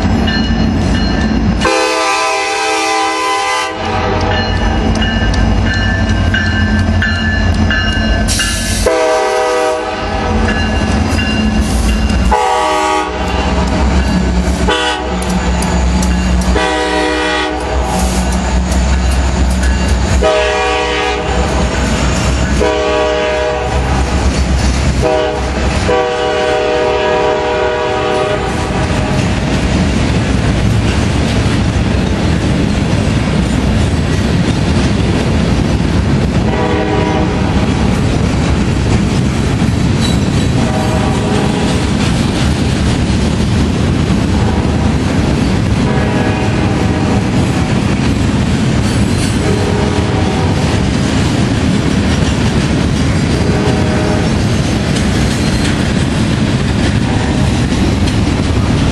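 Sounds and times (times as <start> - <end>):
train cars rumbling and clacking: 0.0 - 58.9
locomotive air horn: 1.6 - 4.3, 8.8 - 10.4, 12.3 - 13.6, 14.6 - 15.3, 16.5 - 18.2, 20.2 - 21.5, 22.6 - 24.0, 25.0 - 28.9, 36.4 - 37.6, 40.6 - 41.8, 45.8 - 47.2, 49.4 - 50.6, 53.3 - 54.4.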